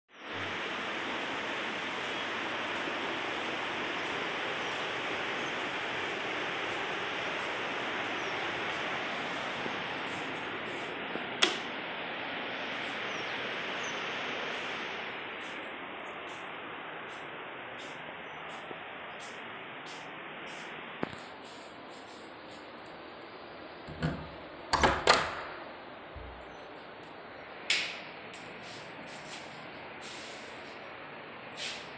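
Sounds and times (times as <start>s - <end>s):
steady rushing noise: 0.2s - 24.7s.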